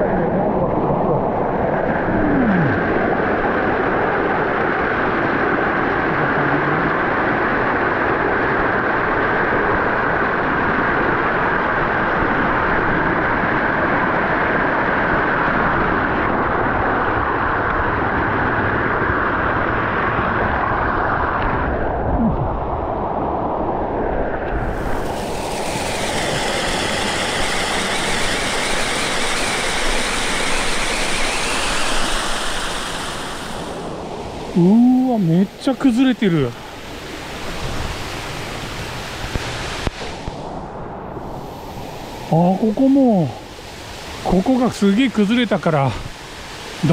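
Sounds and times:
mountain stream rushing: 0:24.2 - 0:46.9.

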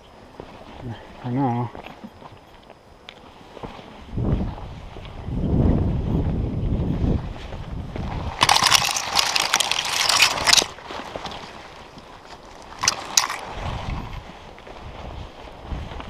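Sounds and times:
pine branches rustling and scraping: 0:07.4 - 0:15.9.

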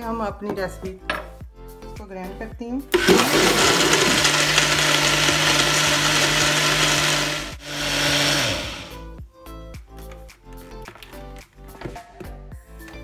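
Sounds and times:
blender running: 0:03.0 - 0:09.0.

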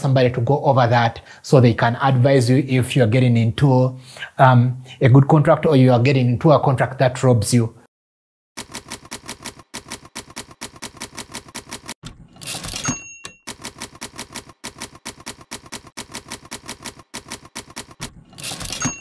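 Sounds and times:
typewriter carriage return sweep: 0:08.6 - 0:19.0
typewriter keystrokes: 0:08.6 - 0:19.0
typewriter bell ding: 0:12.4 - 0:15.4, 0:18.4 - 0:19.0.

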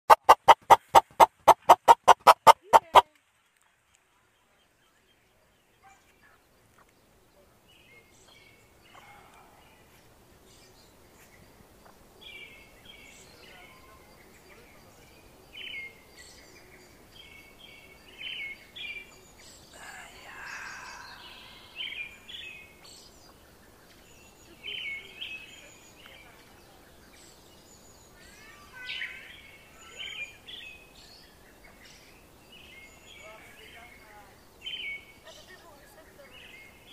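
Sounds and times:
chicks peeping: 0:00.1 - 0:03.0
faint outdoor background noise: 0:00.1 - 0:36.9.

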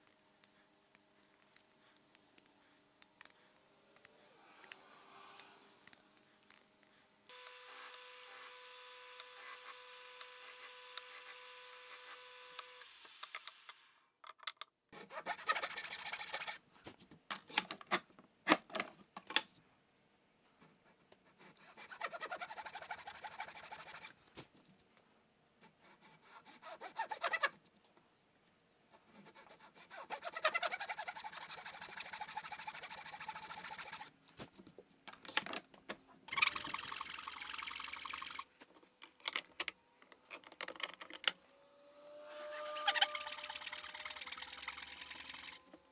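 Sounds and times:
hand saw rasping through wood: 0:29.8 - 0:34.1.

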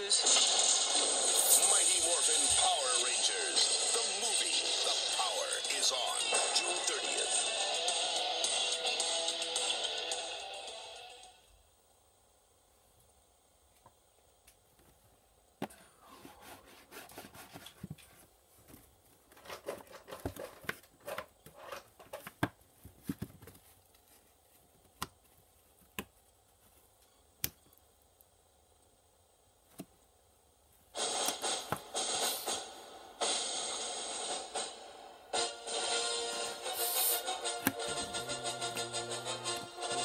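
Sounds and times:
loud steady rush of noise: 0:00.0 - 0:06.9.

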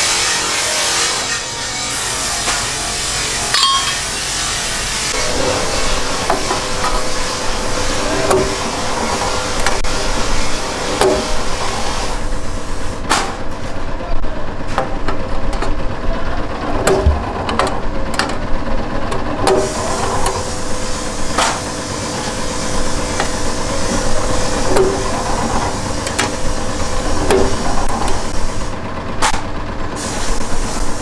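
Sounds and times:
punch press motor hum: 0:14.6 - 0:30.5.

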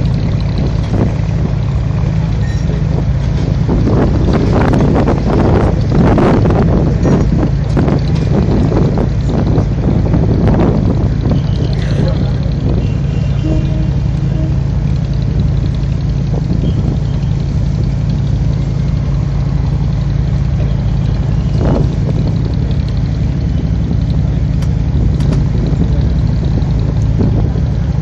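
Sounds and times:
boat engine droning: 0:00.0 - 0:28.0.

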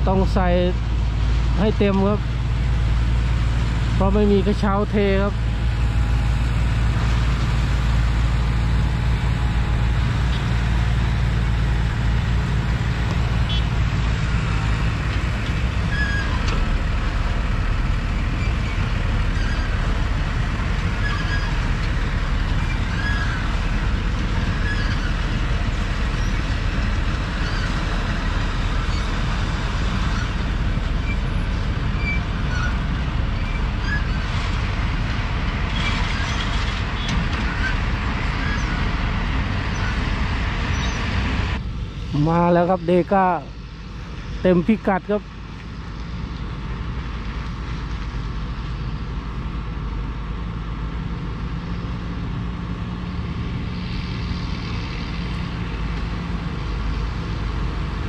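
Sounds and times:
diesel engines running: 0:00.0 - 0:58.0
low engine hum: 0:00.0 - 0:58.0
rough engine rumble: 0:00.0 - 0:58.0.

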